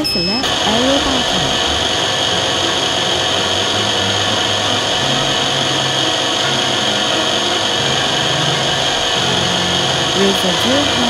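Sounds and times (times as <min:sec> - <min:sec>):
low machine hum: 0:00.0 - 0:11.0.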